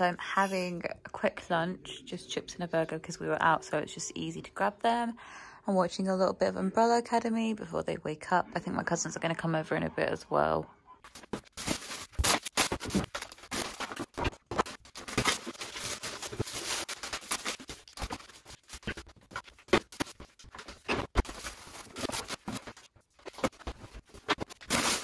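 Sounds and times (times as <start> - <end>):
plastic bags crinkling and rustling: 11.1 - 25.0.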